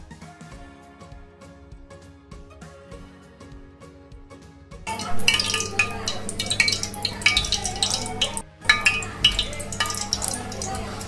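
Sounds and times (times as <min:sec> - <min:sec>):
background music: 0:00.0 - 0:11.0
metal kitchenware scraping steel bowl: 0:04.9 - 0:11.0.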